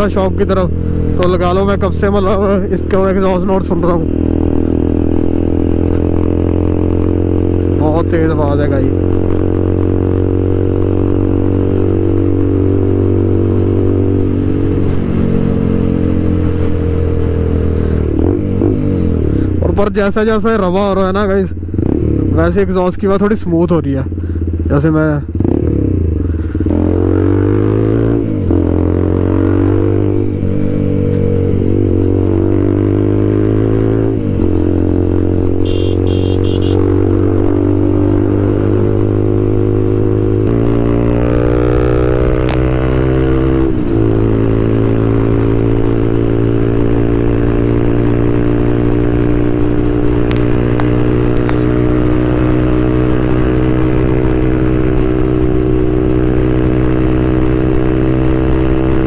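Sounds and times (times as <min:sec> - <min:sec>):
motorcycle engine with loud exhaust: 0:00.0 - 0:59.0.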